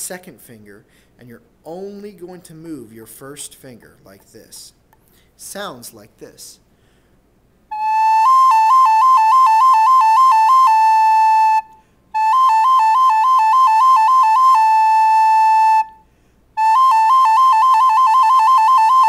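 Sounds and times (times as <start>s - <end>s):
breaths: 0.8s - 1.2s, 5.0s - 5.4s, 6.7s - 7.3s, 11.7s - 12.1s, 16.0s - 16.6s
recorder warbling like a siren: 7.7s - 11.6s, 12.2s - 15.9s, 16.6s - 19.0s.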